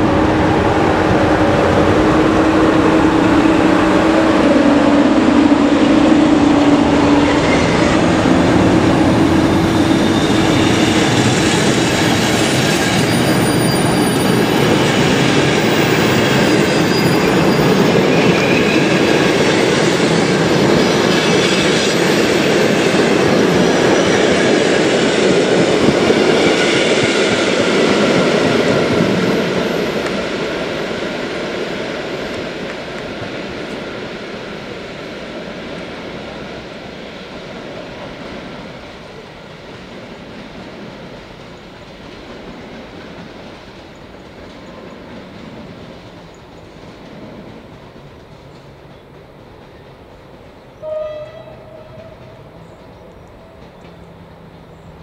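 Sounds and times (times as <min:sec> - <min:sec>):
train horn blast: 0:00.0 - 0:13.8, 0:50.8 - 0:52.5
train wheels rumbling on rails: 0:00.0 - 0:55.0.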